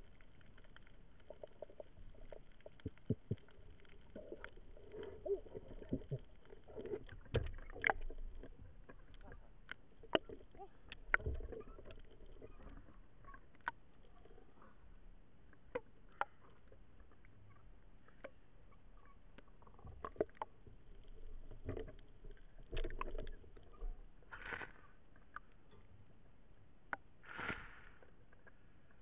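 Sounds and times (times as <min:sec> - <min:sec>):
water splashing and lapping: 0:00.0 - 0:12.9.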